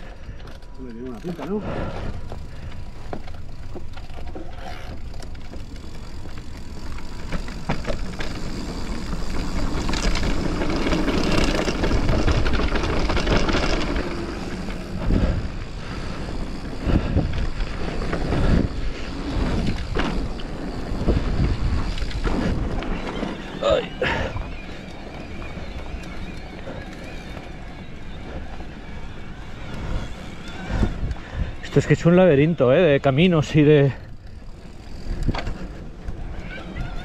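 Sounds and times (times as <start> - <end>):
bike knocking over bumps: 2.1 - 15.1
tyre and wind rush: 5.7 - 24.6.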